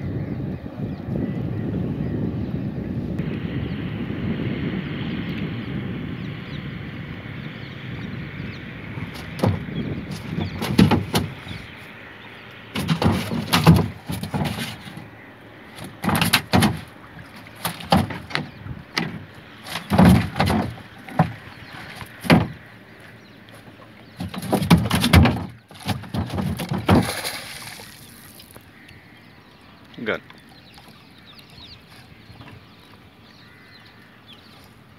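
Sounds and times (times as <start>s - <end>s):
paddle splashing water: 8.8s - 34.9s
knocking on plastic canoe: 9.1s - 11.5s, 12.8s - 14.9s, 15.8s - 16.9s, 17.6s - 22.7s, 24.2s - 27.3s.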